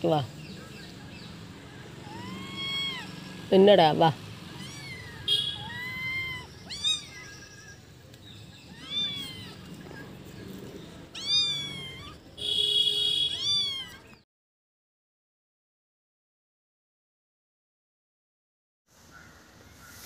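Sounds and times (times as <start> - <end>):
kittens mewing: 1.9 - 3.3, 4.5 - 7.9, 8.6 - 12.3, 13.3 - 14.2.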